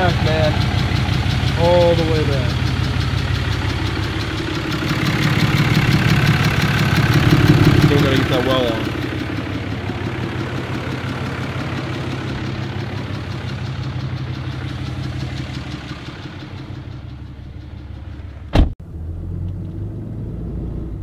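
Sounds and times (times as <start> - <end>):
diesel engine idling: 0.0 - 18.7
truck door slamming: 18.5 - 18.8.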